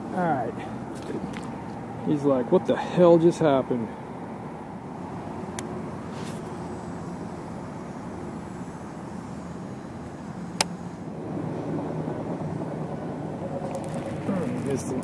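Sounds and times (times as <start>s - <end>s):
road traffic hum: 0.0s - 15.0s
sharp click: 10.6s - 10.8s.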